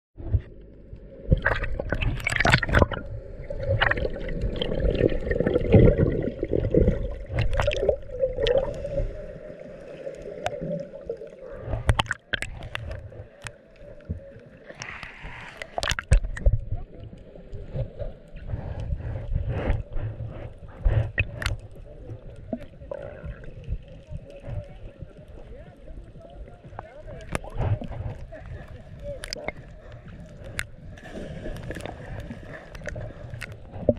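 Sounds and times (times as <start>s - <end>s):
water sloshing and gurgling: 0.2s - 33.9s
water splashes: 0.2s - 33.9s.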